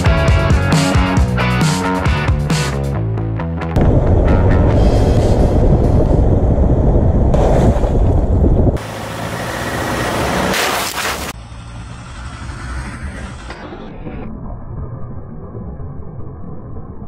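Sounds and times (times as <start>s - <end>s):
car tyres rumbling on dirt road: 3.8s - 16.8s.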